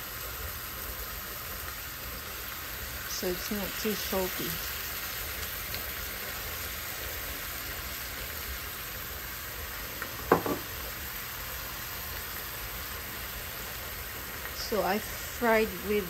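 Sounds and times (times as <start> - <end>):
fish sizzling in a pan: 0.0 - 16.0
brief knock: 10.2 - 10.7.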